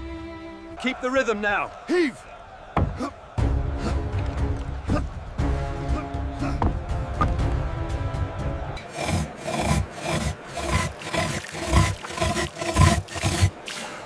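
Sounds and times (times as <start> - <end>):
saw rasping through stone: 8.8 - 14.0.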